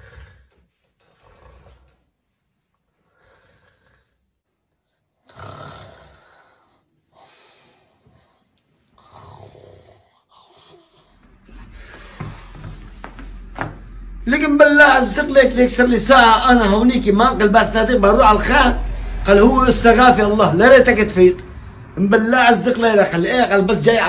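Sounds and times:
person snoring: 0.0 - 0.5, 3.0 - 4.2, 5.2 - 8.2, 9.0 - 13.3.

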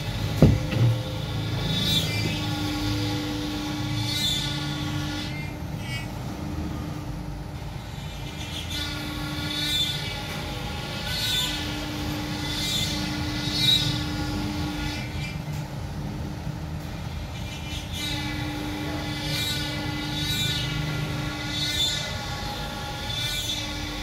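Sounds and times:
wood router running: 0.0 - 6.0.

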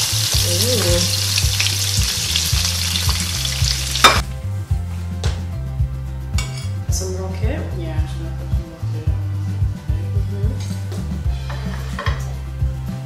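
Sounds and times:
fish sizzling in frying pan: 0.0 - 4.2
background music bass line: 0.0 - 13.0.

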